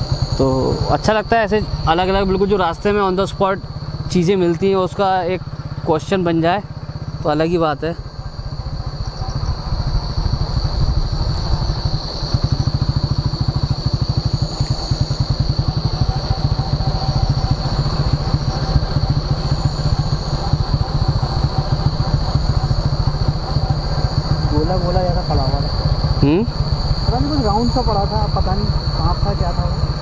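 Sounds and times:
high-pitched whine: 0.0 - 30.0
motorcycle engine running: 0.0 - 30.0.

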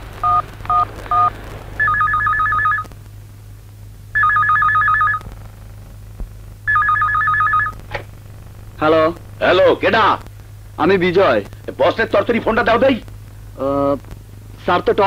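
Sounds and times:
phone keypad beeps: 0.3 - 2.8, 4.2 - 5.2
desk telephone ringing: 1.8 - 2.8, 4.2 - 5.2, 6.7 - 7.7.

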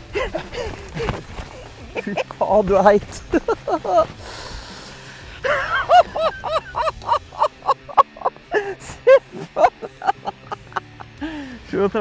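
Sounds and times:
men laughing and whooping: 0.0 - 2.4, 3.2 - 4.2, 5.3 - 11.2.

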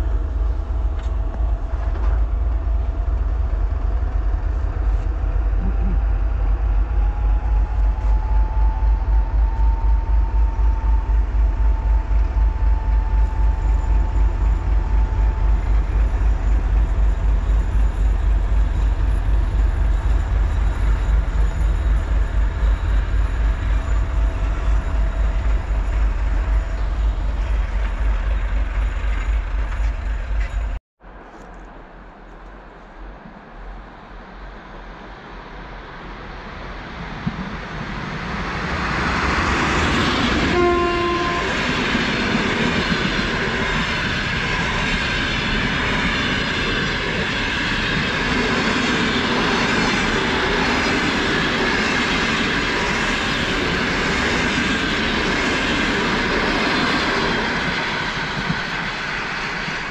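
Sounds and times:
locomotive whine: 0.0 - 31.3, 34.3 - 59.9
wheel-on-rail noise: 0.0 - 32.6
diesel locomotive engine rumble: 0.0 - 59.9.

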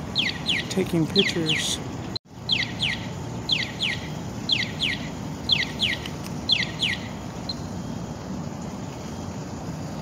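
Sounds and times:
crossing signal chirping: 0.0 - 1.8, 2.4 - 7.8
low city hum: 0.0 - 10.0.

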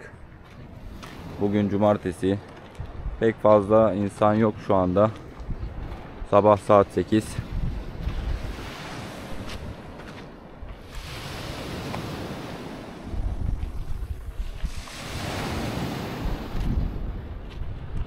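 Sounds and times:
wind rumbling on microphone: 0.0 - 18.0
sea waves washing onto beach: 5.1 - 17.5.

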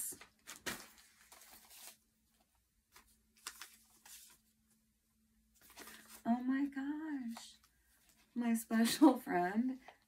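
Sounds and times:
paper and card rustling: 0.0 - 4.6, 5.5 - 6.5.

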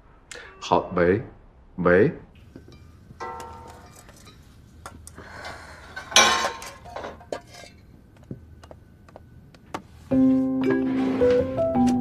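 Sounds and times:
metal utensils and pots clinking: 2.6 - 7.9
music: 10.1 - 12.0.

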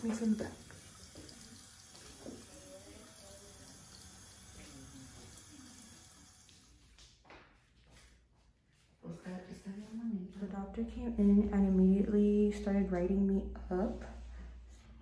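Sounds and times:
running tap water hiss: 0.0 - 6.8.

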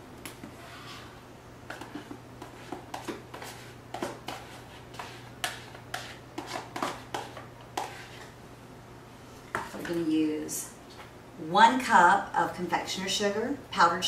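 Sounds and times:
spoon scraping plastic tub: 1.7 - 8.4.

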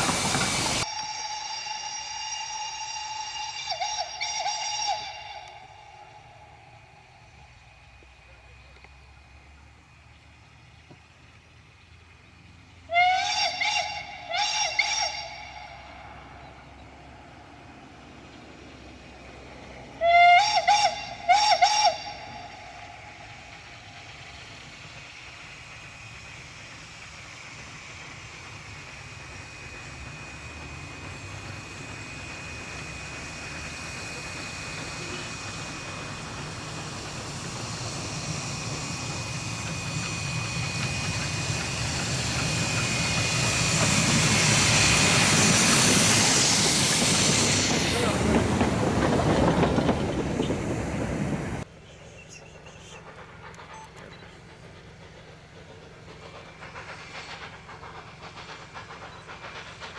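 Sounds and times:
steam locomotive whistle blasts: 0.0 - 7.4, 12.9 - 16.7, 19.8 - 23.8
steam locomotive running: 0.0 - 59.9
thin steady whine: 5.0 - 12.8, 22.0 - 48.6.

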